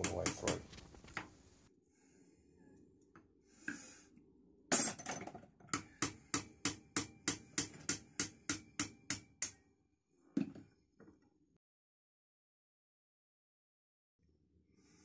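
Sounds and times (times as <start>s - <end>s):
hammer striking metal punch: 0.0s - 0.7s, 5.8s - 9.6s.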